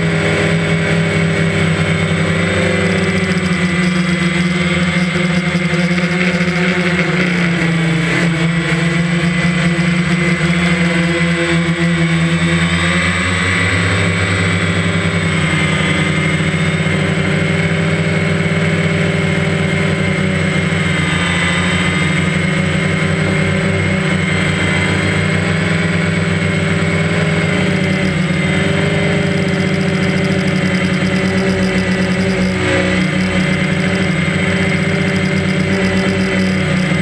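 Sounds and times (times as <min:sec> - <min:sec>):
drone propellers buzzing: 0:00.0 - 0:37.0.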